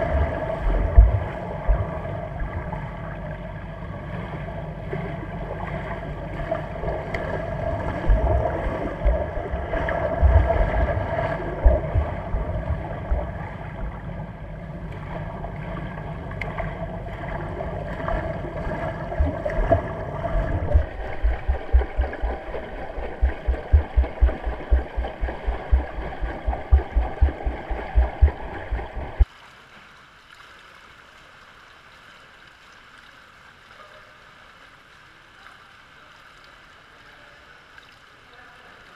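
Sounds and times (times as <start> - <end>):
low underwater thumps: 0.0 - 2.7, 6.8 - 14.2, 16.4 - 29.2
muffled underwater water churning: 0.0 - 29.3
steady water hiss: 0.0 - 38.9.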